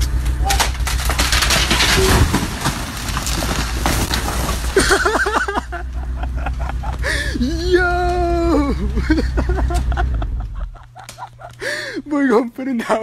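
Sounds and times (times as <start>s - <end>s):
forklift engine hum: 0.0s - 12.2s
cardboard boxes crashing to floor: 0.7s - 5.0s
person crying out: 6.9s - 9.3s.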